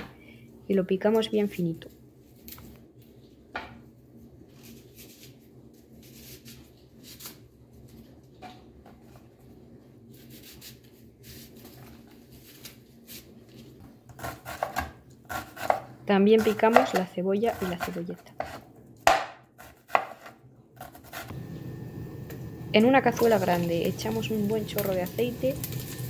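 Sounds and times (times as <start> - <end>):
knife chopping on cutting board: 14.1 - 21.3
knife tapping and scraping on board: 17.6 - 21.0.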